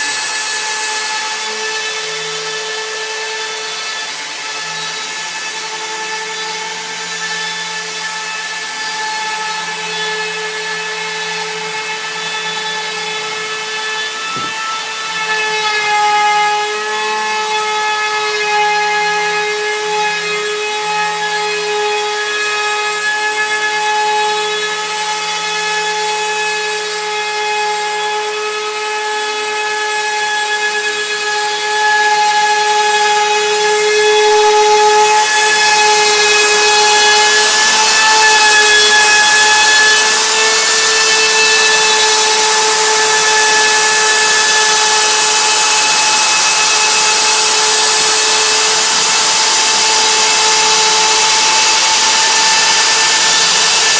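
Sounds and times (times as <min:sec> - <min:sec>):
router spindle whining: 0:00.0 - 0:18.4, 0:29.4 - 0:53.9
router cutting wood: 0:00.0 - 0:53.9.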